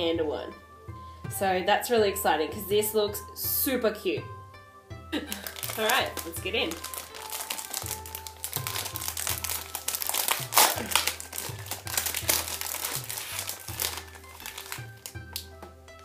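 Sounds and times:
plastic packet crinkling: 5.2 - 15.6.

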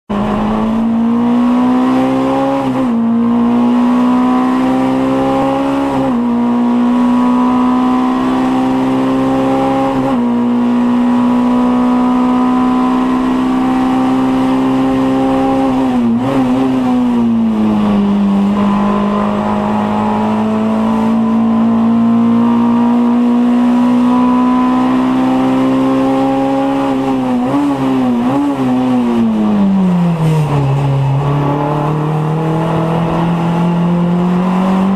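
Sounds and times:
race car engine revving: 0.1 - 34.9.

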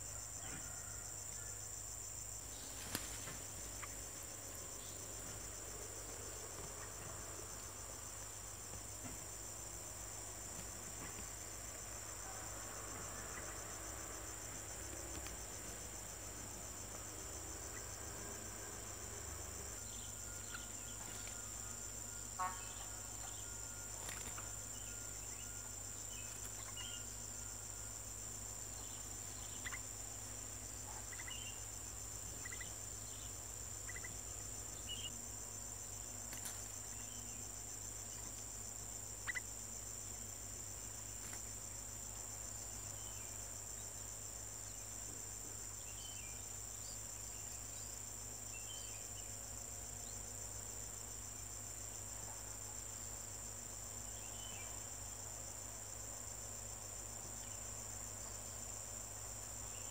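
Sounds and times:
insect chorus trilling: 0.0 - 59.9.

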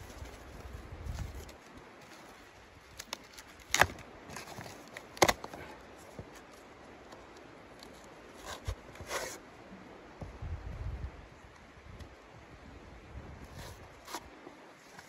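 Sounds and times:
cardboard cracking: 0.0 - 6.4
cardboard tearing: 2.9 - 5.6.

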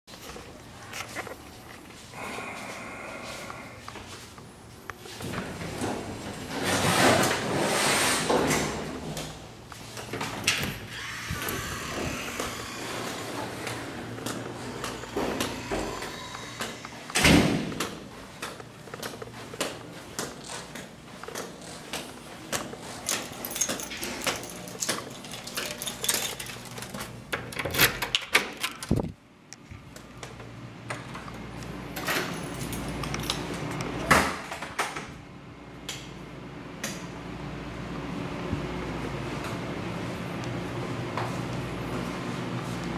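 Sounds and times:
door opening: 8.3 - 29.1
keys jangling: 22.8 - 29.0, 32.0 - 33.6.

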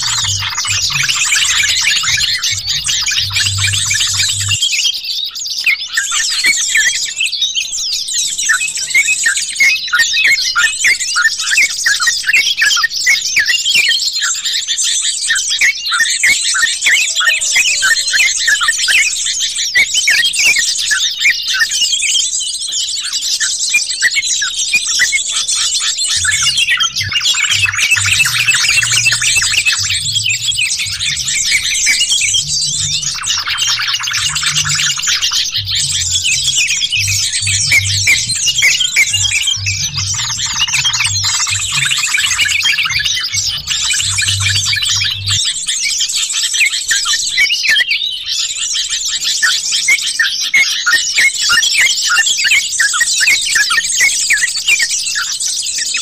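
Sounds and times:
bulbuls chirping and trilling: 0.0 - 13.1, 22.6 - 51.6.

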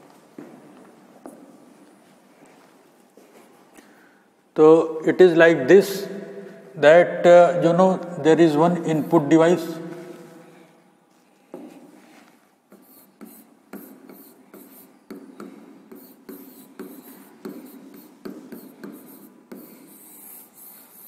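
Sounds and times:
stylus scraping strokes: 12.0 - 21.0.

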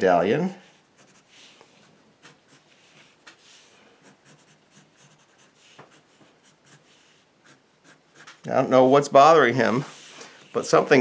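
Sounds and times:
pencil scratching on paper: 0.7 - 8.5.

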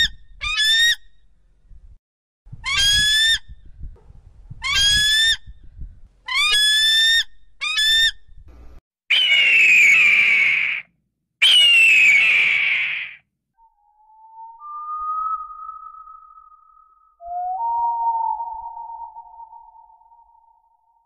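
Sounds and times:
harsh descending hawk screams: 9.1 - 13.2.

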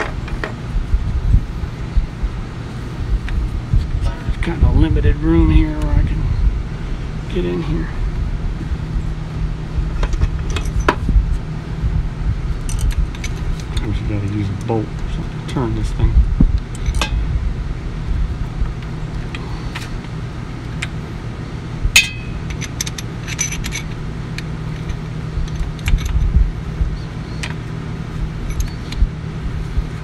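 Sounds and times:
low steady hum: 0.0 - 30.0
metal parts clinking: 10.0 - 11.0, 12.7 - 14.7, 22.0 - 26.3, 28.4 - 29.0.

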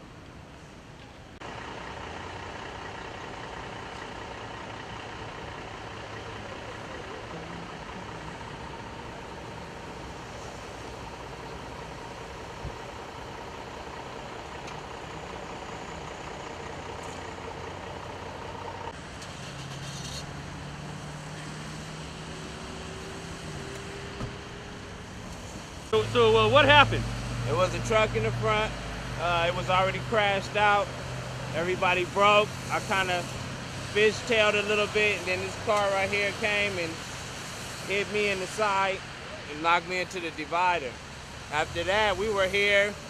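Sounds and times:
truck engines idling: 0.0 - 43.0
constant wash of noise: 20.9 - 43.0.

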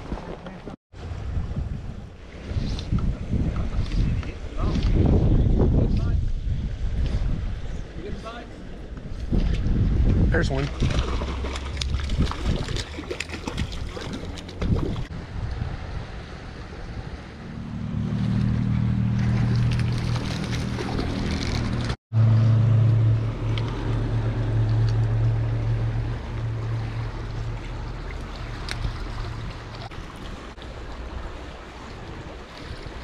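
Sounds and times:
wind on microphone: 0.0 - 22.0
low steady hum: 15.2 - 29.9
creek water rushing: 23.3 - 33.0.

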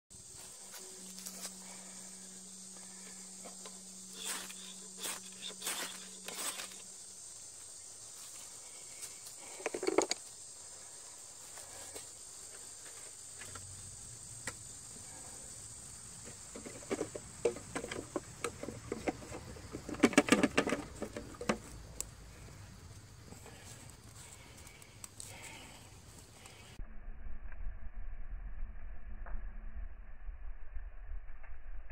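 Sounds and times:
low steady hum: 0.1 - 9.6
high insect drone: 0.1 - 26.8.

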